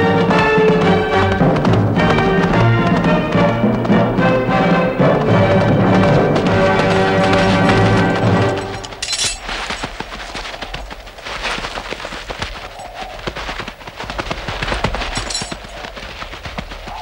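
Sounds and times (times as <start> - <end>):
clatter of sharp knocks: 5.0 - 10.4.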